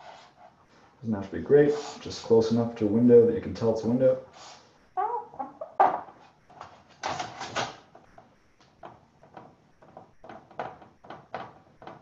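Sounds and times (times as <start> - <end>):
marker drawing on paper: 0.0 - 0.6.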